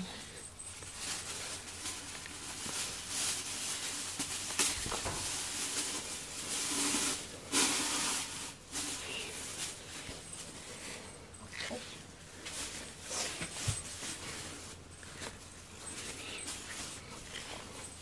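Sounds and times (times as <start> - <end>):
brush stroking cat fur: 11.5 - 18.0.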